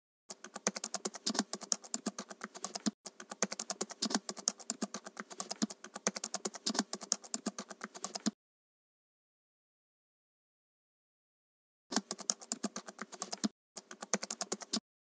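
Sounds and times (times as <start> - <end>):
fast typing on keyboard: 0.3 - 8.4, 11.9 - 14.8.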